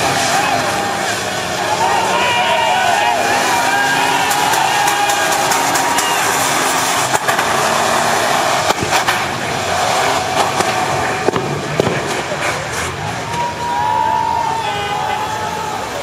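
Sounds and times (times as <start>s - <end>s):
car engine noise: 0.0s - 16.0s
tyres spinning and spraying water: 0.0s - 16.0s
sharp cracks: 8.6s - 9.5s.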